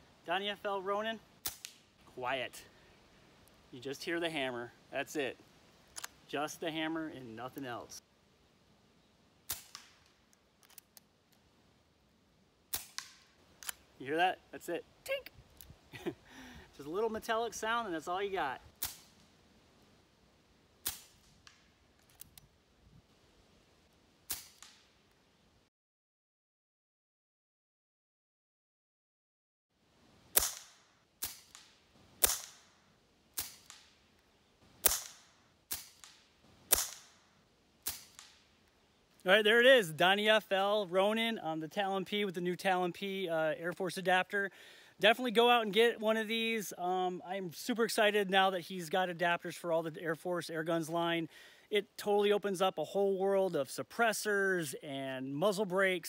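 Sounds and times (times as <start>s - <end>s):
air pistol loud cracks: 1.4s - 1.8s, 9.5s - 10.1s, 12.7s - 13.8s, 18.8s - 19.1s, 20.8s - 21.7s, 24.3s - 24.8s, 30.3s - 32.8s, 33.4s - 34.0s, 34.8s - 37.2s, 37.8s - 38.4s
suppressed air pistol shots: 1.4s - 1.8s, 9.4s - 10.1s, 12.7s - 13.8s, 18.8s - 19.2s, 20.8s - 21.7s, 24.3s - 24.9s, 30.3s - 32.8s, 33.4s - 34.0s, 34.8s - 38.4s
small clicks: 9.6s - 11.4s.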